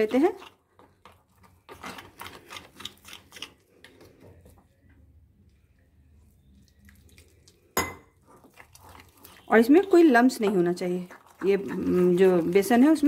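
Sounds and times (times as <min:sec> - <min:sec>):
spoon scraping glass bowl: 0:08.4 - 0:13.0.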